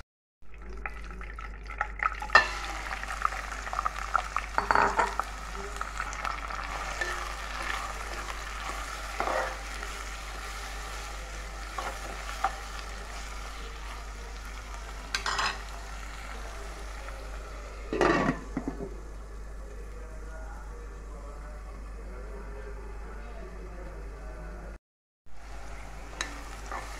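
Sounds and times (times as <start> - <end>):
onions sizzling in hot oil: 2.0 - 21.1, 25.3 - 26.9.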